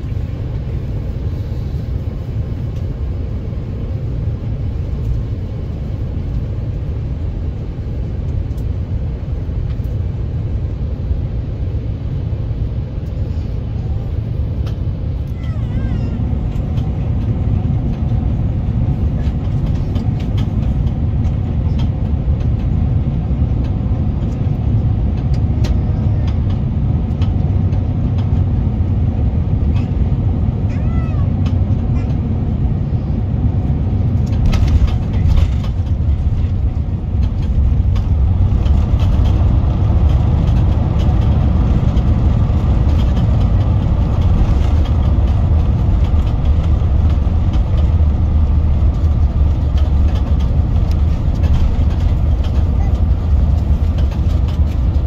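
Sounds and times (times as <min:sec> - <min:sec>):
jet engine rumble inside cabin: 0:00.0 - 0:55.0
light clicks and rattles: 0:34.1 - 0:55.0.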